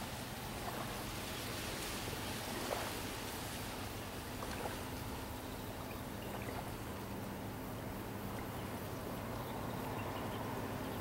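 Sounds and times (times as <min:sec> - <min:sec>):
faint low hum: 0:00.0 - 0:11.0
light water splashes: 0:00.0 - 0:11.0
small waves lapping at shore: 0:00.0 - 0:11.0.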